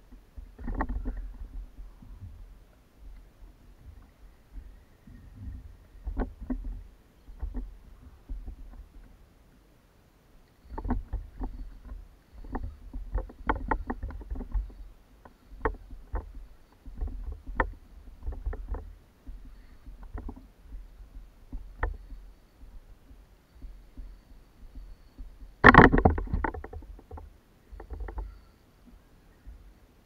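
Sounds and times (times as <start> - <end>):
knocks and clicks on plastic kayak: 10.7 - 28.4.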